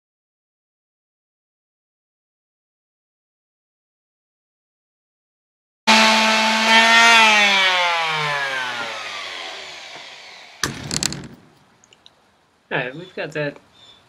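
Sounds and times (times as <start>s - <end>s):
electric sander motor whine: 5.9s - 10.6s.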